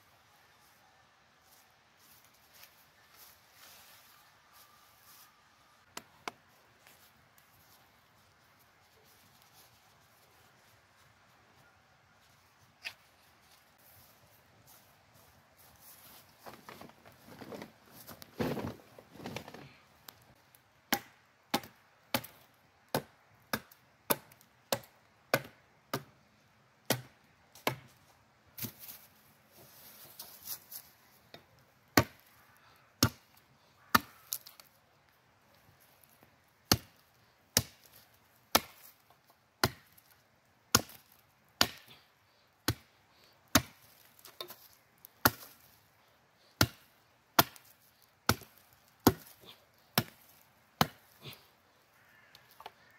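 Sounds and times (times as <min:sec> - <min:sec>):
blade chopping wood: 0:20.9 - 0:26.1, 0:36.7 - 0:37.0, 0:38.5 - 0:39.0, 0:39.6 - 0:40.1, 0:40.7 - 0:42.0, 0:42.6 - 0:42.9, 0:43.5 - 0:45.6, 0:46.6 - 0:47.7, 0:48.3 - 0:49.4, 0:50.0 - 0:51.1.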